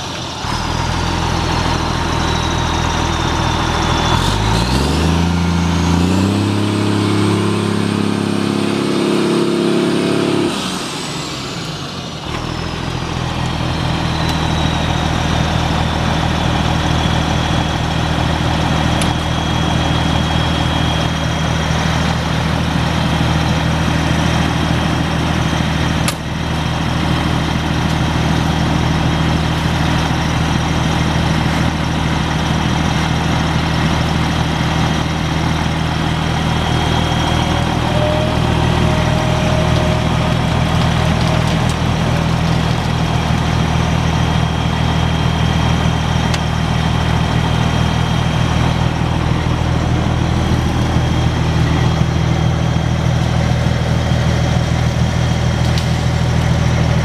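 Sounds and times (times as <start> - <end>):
diesel truck engine idling: 0.0 - 57.0
high whine falling in pitch: 33.4 - 57.0.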